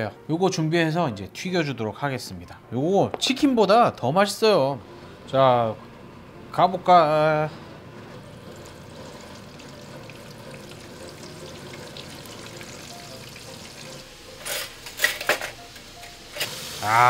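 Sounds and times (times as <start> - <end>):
oil sizzling and bubbling: 7.7 - 17.0.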